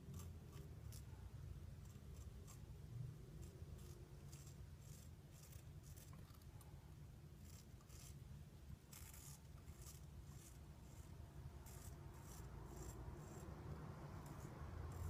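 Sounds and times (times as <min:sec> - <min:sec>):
steady low hum: 0:00.0 - 0:15.0
straight razor scraping stubble: 0:03.4 - 0:06.4, 0:07.4 - 0:08.2, 0:08.9 - 0:13.5.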